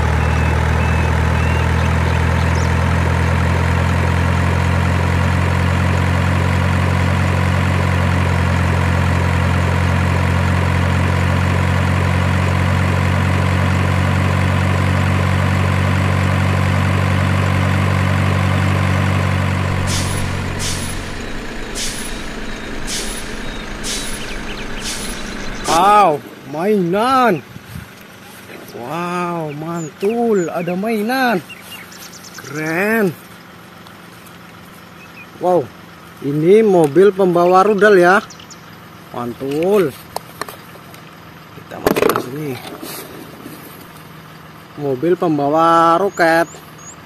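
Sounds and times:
heavy truck engine drone: 0.0s - 47.0s
short sharp hiss: 19.7s - 25.8s.

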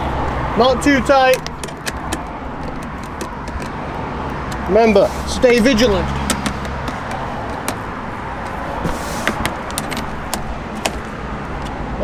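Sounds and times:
screwdriver clicking and tapping: 1.3s - 3.8s, 6.2s - 7.8s, 9.3s - 11.8s.

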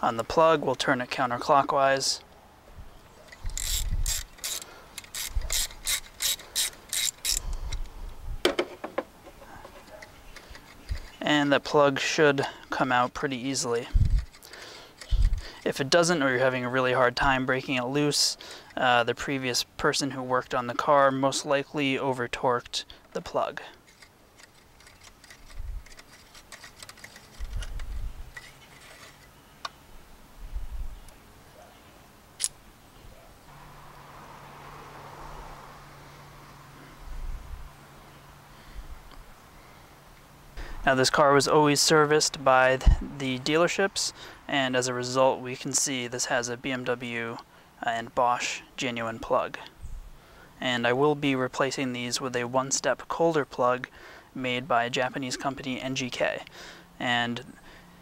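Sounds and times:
hand ratchet clicking: 3.3s - 7.8s, 23.9s - 29.1s
dull knocks of tool handling: 8.4s - 10.0s.

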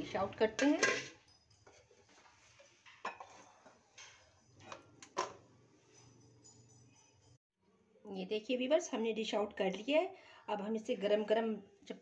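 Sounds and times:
spoon scraping in a wok: 0.5s - 5.2s.

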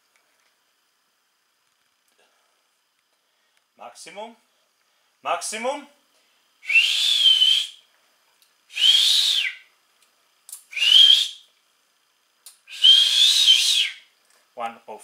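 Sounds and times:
loud whistle blasts: 6.6s - 7.8s, 8.7s - 9.7s, 10.7s - 11.5s, 12.7s - 14.1s.

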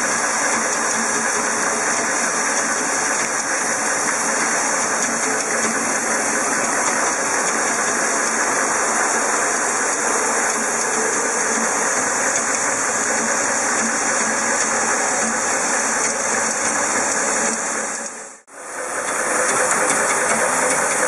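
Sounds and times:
assembly machine running: 0.0s - 21.0s.

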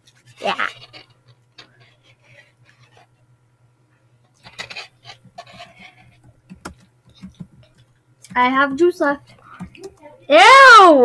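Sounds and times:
low electrical hum: 0.0s - 11.0s
computer keyboard typing: 5.5s - 8.5s, 9.2s - 10.1s.

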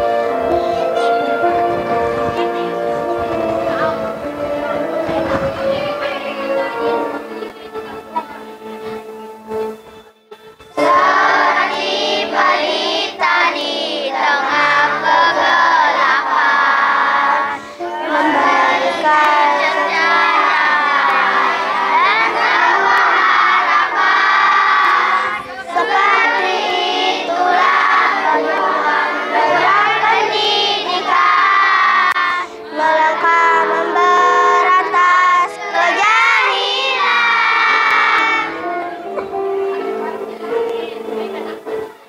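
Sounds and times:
low instrumental accompaniment: 0.0s - 42.0s
girls choir singing in unison: 10.7s - 41.3s.

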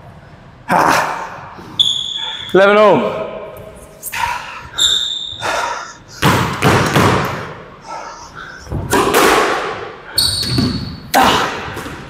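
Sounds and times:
shoe squeak on floor: 1.8s - 2.6s, 4.8s - 5.4s, 10.2s - 11.0s
squash ball impacts: 6.2s - 7.6s, 8.7s - 12.0s.

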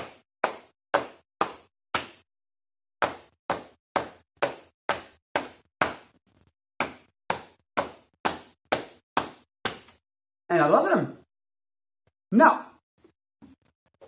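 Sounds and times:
hands tapping and clapping rhythm: 0.0s - 2.2s, 3.0s - 6.2s, 6.8s - 10.0s.

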